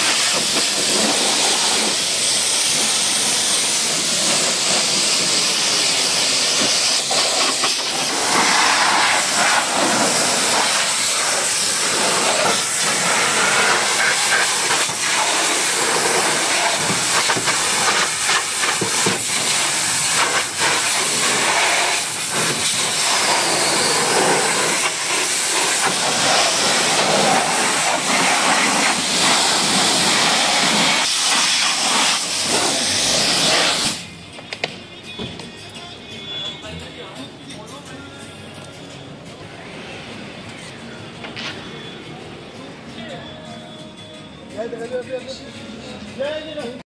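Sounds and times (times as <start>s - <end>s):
pressure washer spraying water: 0.0s - 34.1s.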